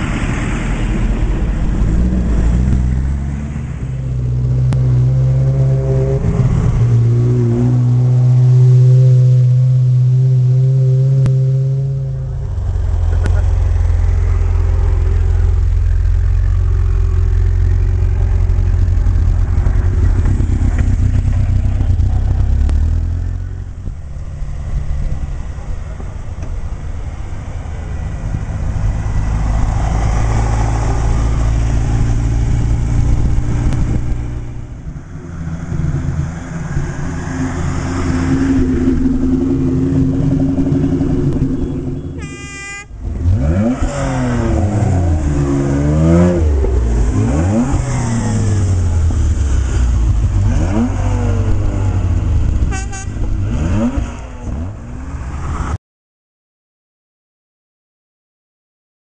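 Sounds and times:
sports cars driving past: 0.0 - 42.3, 42.9 - 55.8
car horn: 41.5 - 43.0, 52.6 - 53.3
car engine revving hard: 43.0 - 52.3, 53.2 - 54.8.

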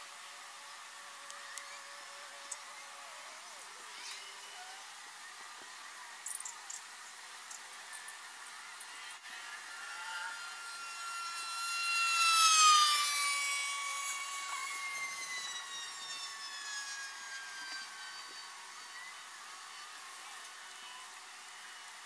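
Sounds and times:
passing engine drone: 9.2 - 19.2.

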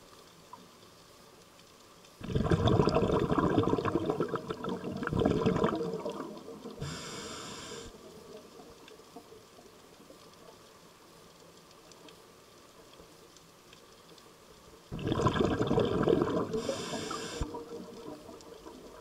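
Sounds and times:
exhaled bubbles rushing: 2.2 - 6.8, 14.9 - 19.0
regulator inhale hiss: 6.8 - 8.0, 16.5 - 17.6.

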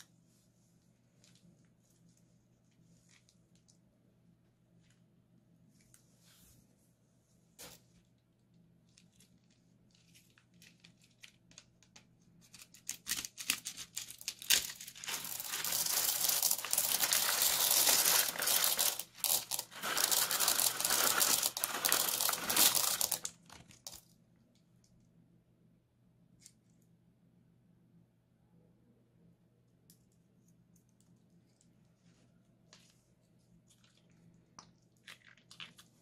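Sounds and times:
plastic bag crinkling: 12.8 - 24.0
plastic beads rattling: 12.9 - 24.1.

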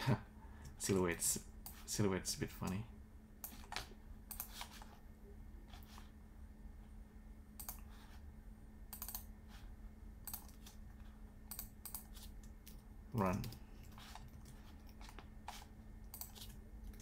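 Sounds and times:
faint steady hum: 0.0 - 17.0
keyboard and mouse clicks: 3.4 - 4.9, 7.6 - 7.8, 8.9 - 9.3, 10.2 - 10.8, 11.5 - 17.0.

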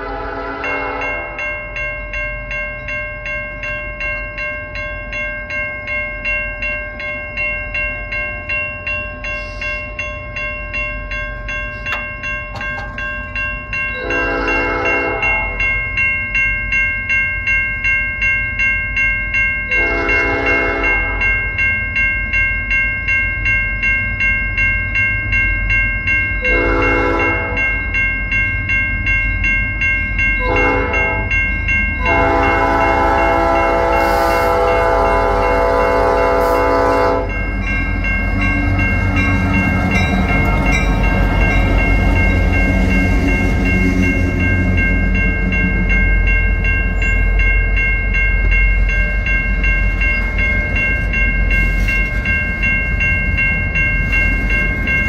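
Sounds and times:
locomotive horn blasts: 0.0 - 1.4, 14.0 - 15.6, 19.7 - 21.2, 26.5 - 27.6, 30.4 - 31.3, 32.0 - 37.4
railroad crossing bell dinging: 0.0 - 55.0.

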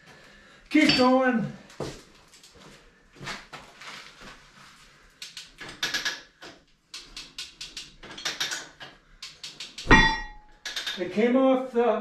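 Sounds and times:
lever hoist ratcheting clicks: 5.2 - 11.0.

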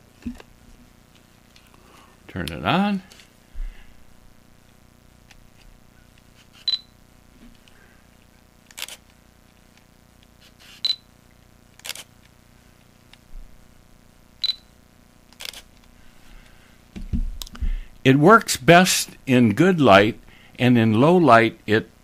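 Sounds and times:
camera lens autofocusing: 6.2 - 6.9, 8.7 - 11.0, 11.8 - 12.2, 15.3 - 15.9
camera shutter click: 8.7 - 9.1, 11.8 - 12.1, 15.4 - 15.7.

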